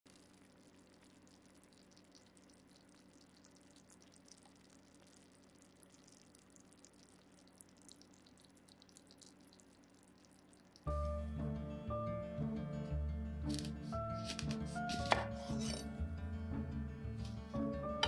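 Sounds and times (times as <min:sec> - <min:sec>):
juices bubbling and popping: 0:00.0 - 0:11.0
low steady hum: 0:00.1 - 0:18.0.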